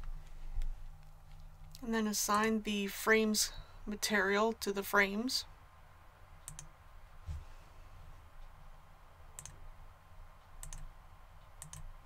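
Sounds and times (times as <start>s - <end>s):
soft low thump: 7.2s - 7.5s.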